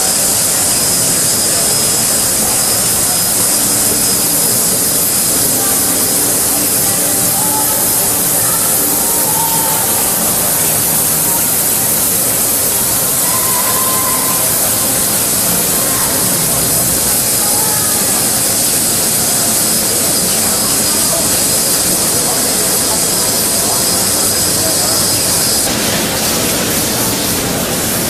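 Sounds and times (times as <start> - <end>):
machine water spraying hiss: 0.0 - 28.0.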